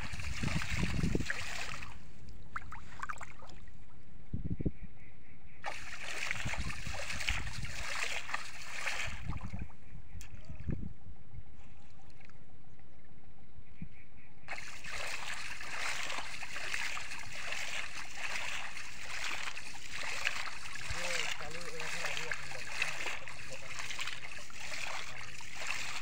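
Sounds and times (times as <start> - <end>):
shallow water splashing: 0.0 - 4.0, 5.6 - 10.7, 14.5 - 26.0.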